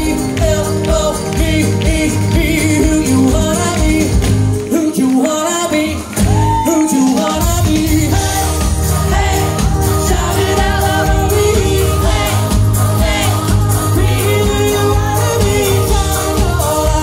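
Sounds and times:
drum kit: 0.0s - 17.0s
man singing: 0.0s - 17.0s
electric bass: 7.4s - 17.0s.

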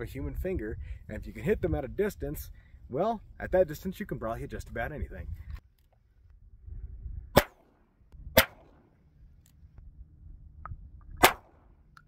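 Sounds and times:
low rumble: 8.0s - 12.0s.

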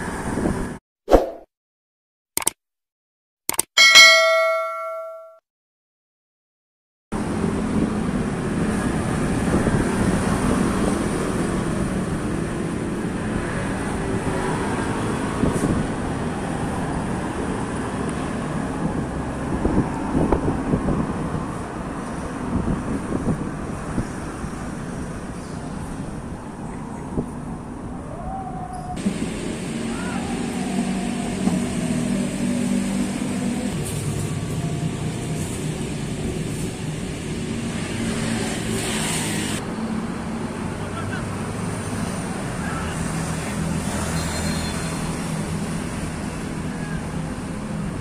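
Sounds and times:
bell-like chime: 3.8s - 5.4s
outdoor background noise: 7.2s - 48.0s.

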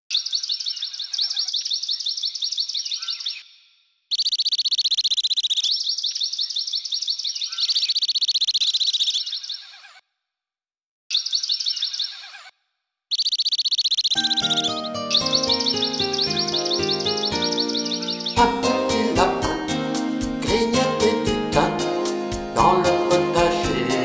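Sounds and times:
high-pitched chirping trills: 0.1s - 3.5s, 4.1s - 9.8s, 11.1s - 12.4s, 13.1s - 20.1s.

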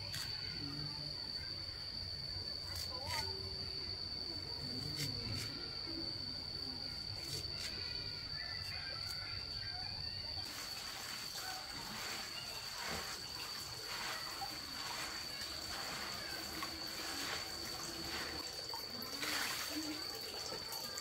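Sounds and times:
water splashing and trickling: 10.4s - 21.0s.

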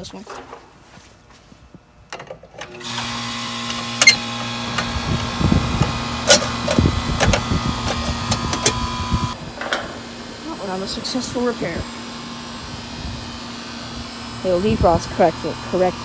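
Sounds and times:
compressor humming: 1.7s - 16.0s
fan spinning up: 2.6s - 16.0s.

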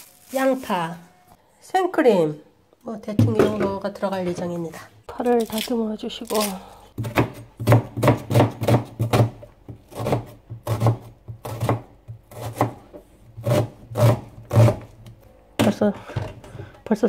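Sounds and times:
knife chopping onion on cutting board: 7.0s - 14.9s.

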